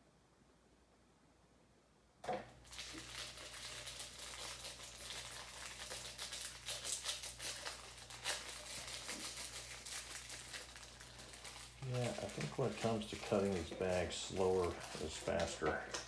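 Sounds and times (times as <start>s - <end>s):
plastic bag crinkling: 2.5s - 16.0s.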